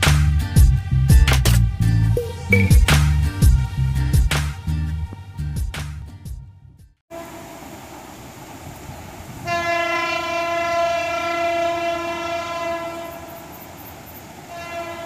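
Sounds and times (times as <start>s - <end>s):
locomotive air horn: 7.1s - 7.7s, 9.4s - 13.8s, 14.4s - 15.0s.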